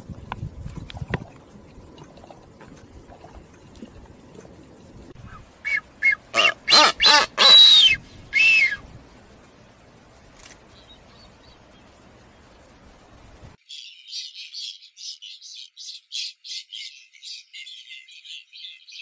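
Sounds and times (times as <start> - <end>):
seabirds calling: 5.2 - 8.8, 13.6 - 19.0.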